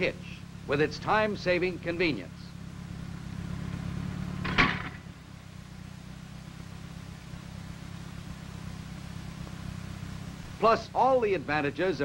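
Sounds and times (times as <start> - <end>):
tractor engine idling: 0.0 - 12.0
sharp knock: 4.4 - 5.0.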